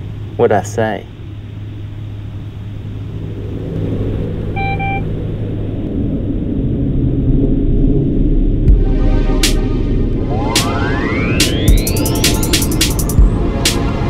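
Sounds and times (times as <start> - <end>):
low rumble: 1.1 - 14.0
short beeping tone: 4.6 - 5.1.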